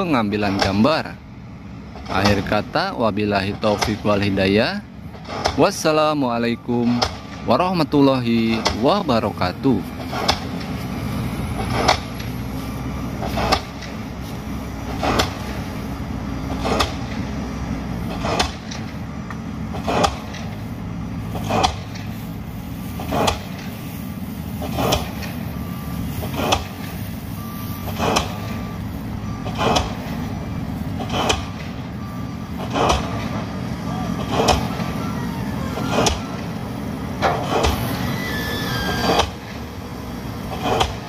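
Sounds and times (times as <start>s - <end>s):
heavy machinery engines running: 0.0s - 41.0s
pile driver strikes: 16.5s - 17.3s, 32.6s - 33.4s, 34.2s - 35.0s.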